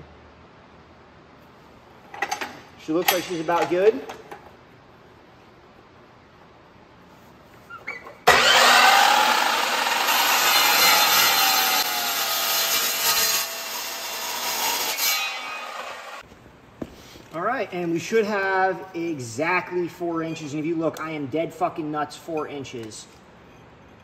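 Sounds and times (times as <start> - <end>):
chop saw cutting steel: 8.3 - 16.2.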